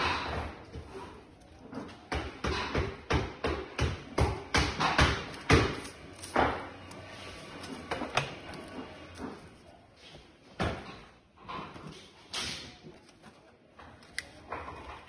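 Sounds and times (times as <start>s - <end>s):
cardboard tubes knocking on wood: 0.0s - 9.6s.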